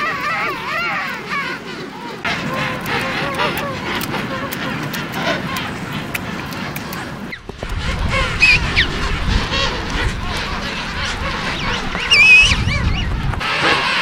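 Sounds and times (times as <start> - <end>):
penguins calling: 0.0 - 14.0
low rumble: 7.3 - 13.4.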